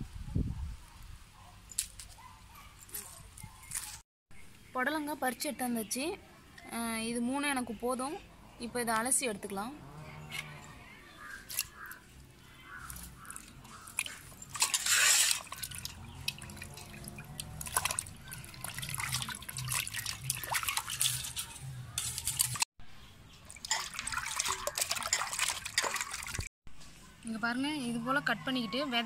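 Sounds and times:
water splashing in a steel pot: 12.8 - 22.6, 23.4 - 26.5.

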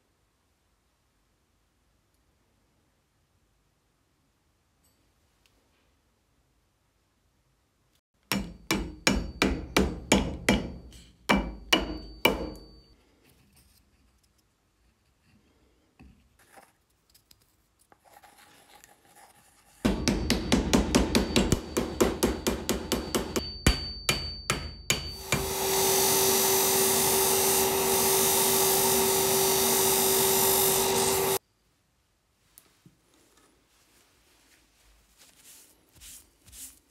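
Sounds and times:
polishing machine humming: 25.2 - 31.4.

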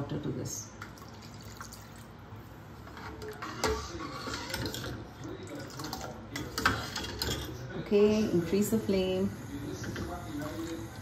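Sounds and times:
water pouring into pot: 0.8 - 2.2, 3.1 - 7.5
ladle stirring in pot: 0.8 - 8.1.

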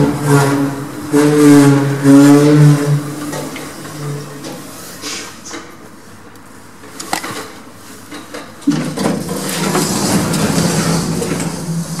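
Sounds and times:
noisy rattle: 8.7 - 12.0.

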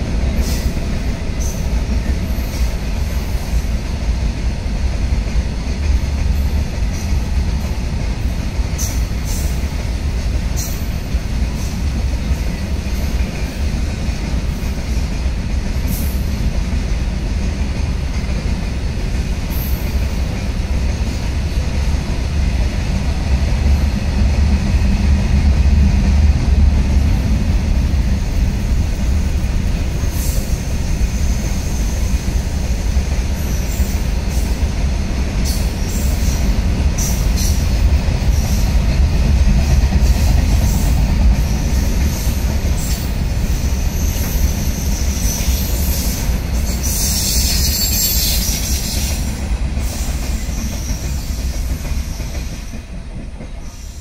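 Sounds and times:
train wheels rumbling on rail: 0.0 - 54.0.

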